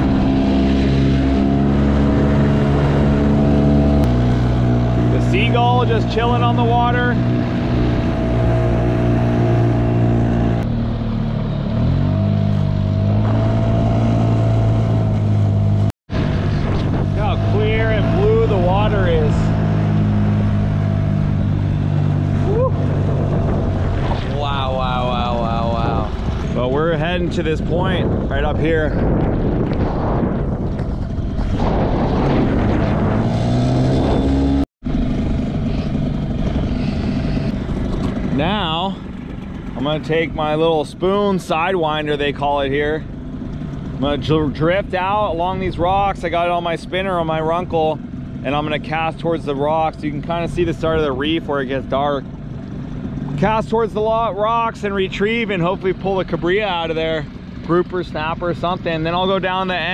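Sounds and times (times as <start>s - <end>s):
outboard motor running: 0.0s - 59.9s
water noise: 0.0s - 59.9s
wind noise: 11.8s - 41.4s.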